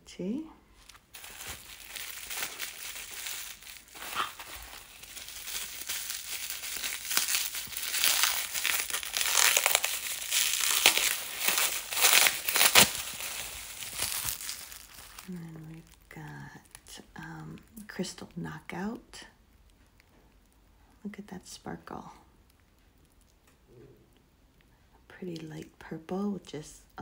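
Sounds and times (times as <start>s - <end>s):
packaging wrap crackling: 0.8s - 17.9s.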